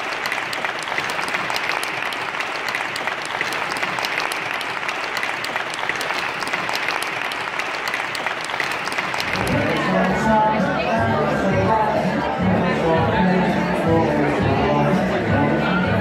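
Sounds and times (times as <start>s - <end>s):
crowd clapping: 0.0s - 10.5s.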